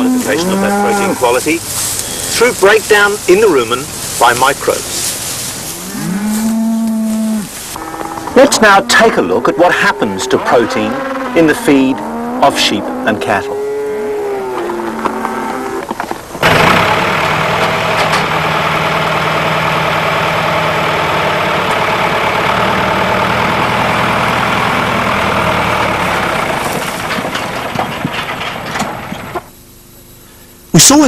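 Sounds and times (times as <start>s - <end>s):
tractor engine running: 0.0s - 13.4s, 14.5s - 29.6s.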